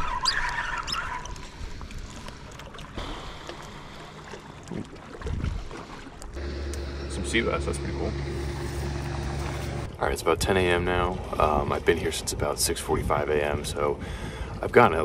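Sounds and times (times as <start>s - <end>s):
water lapping at rocks: 0.0s - 7.6s
wind on microphone: 4.7s - 5.7s, 9.8s - 15.0s.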